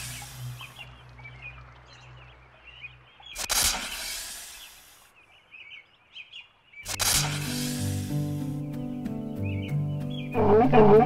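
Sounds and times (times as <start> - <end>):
snake hissing: 0.0 - 0.8, 3.4 - 5.1, 6.9 - 8.8
small birds chirping: 0.0 - 11.0.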